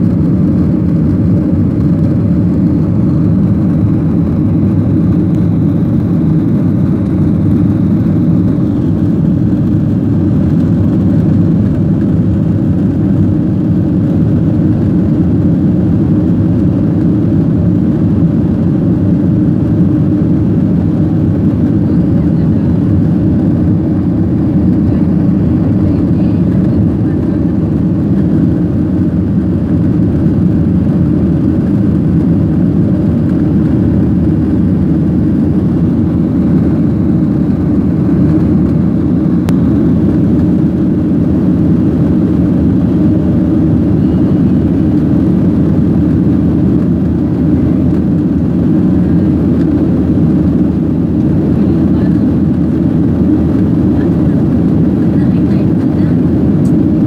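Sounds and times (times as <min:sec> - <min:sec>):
airliner cabin engine rumble: 0:00.0 - 0:57.0.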